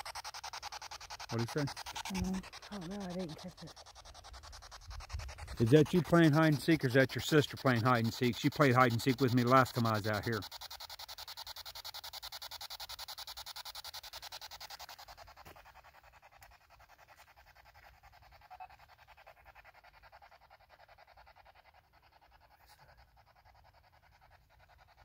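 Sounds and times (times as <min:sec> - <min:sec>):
rapid chopping static: 0:00.0 - 0:16.0.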